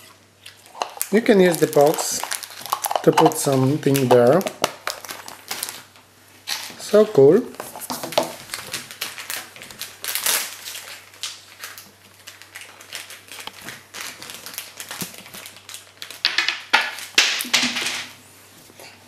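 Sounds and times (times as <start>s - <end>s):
plastic packet crinkling: 0.5s - 6.8s, 7.6s - 17.3s
plastic packet tearing: 0.6s - 5.9s, 7.7s - 17.2s.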